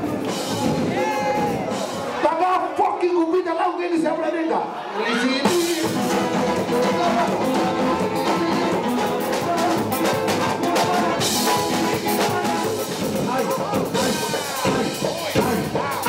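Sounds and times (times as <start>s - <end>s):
steady drum beat: 0.0s - 2.3s, 5.4s - 16.0s
keyboards: 5.0s - 16.0s
brass melody: 5.4s - 16.0s.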